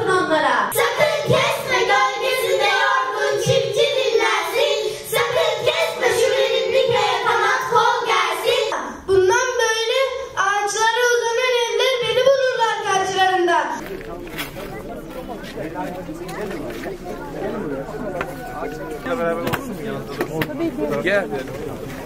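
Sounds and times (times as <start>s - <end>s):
children singing into microphones: 0.7s - 9.5s.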